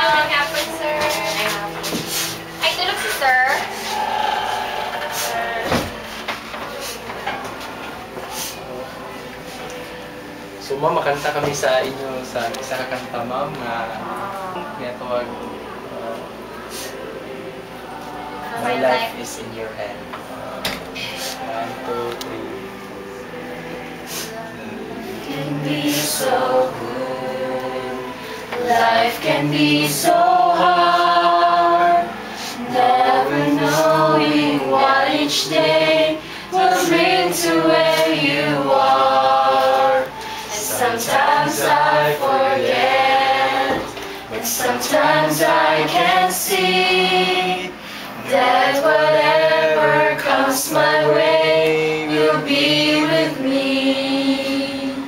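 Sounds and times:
women singing in unison: 24.0 - 55.0.

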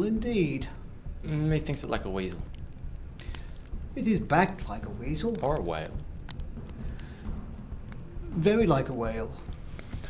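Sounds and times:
low steady rumble: 0.0 - 10.0
faint clicks: 2.2 - 8.4.

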